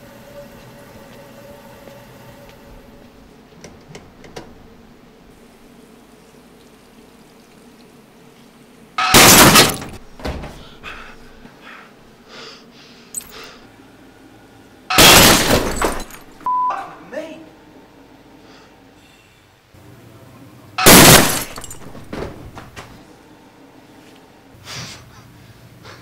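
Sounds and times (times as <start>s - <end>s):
broken glass rattling: 9.0s - 10.0s, 14.9s - 16.4s, 20.8s - 22.6s
mirror shattering crash: 9.0s - 10.0s, 14.9s - 16.4s, 20.8s - 22.6s.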